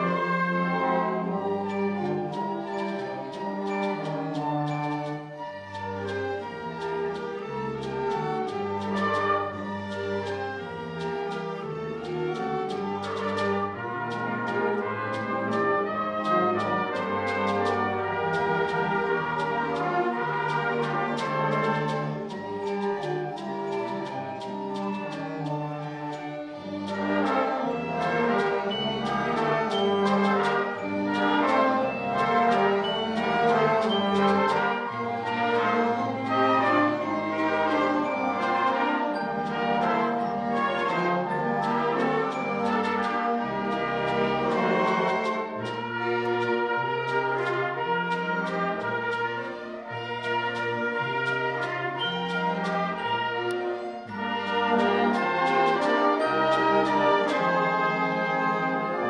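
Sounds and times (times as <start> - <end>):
youth band playing carols: 0.0 - 59.0.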